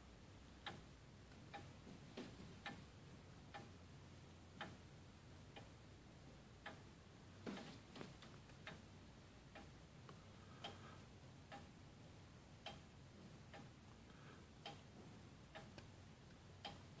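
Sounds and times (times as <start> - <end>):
grandfather clock ticking: 0.4 - 17.0.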